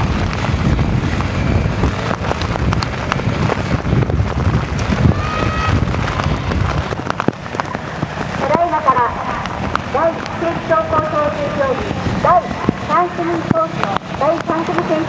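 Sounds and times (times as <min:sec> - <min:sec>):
motorcycle engine running: 0:00.0 - 0:15.0
rain pattering: 0:00.0 - 0:15.0
wind buffeting microphone: 0:00.0 - 0:15.0.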